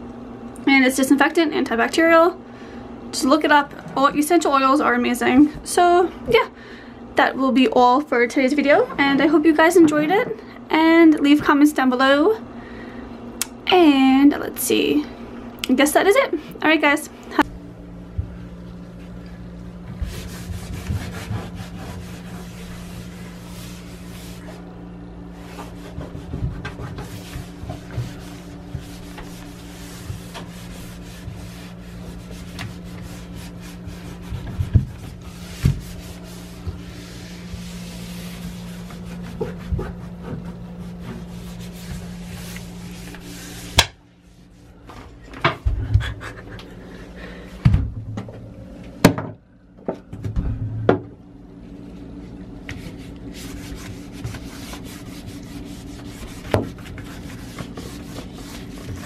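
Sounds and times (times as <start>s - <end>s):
steady low hum: 0.0s - 59.0s
cloth rubbing a bathtub: 19.8s - 46.5s, 52.0s - 59.0s.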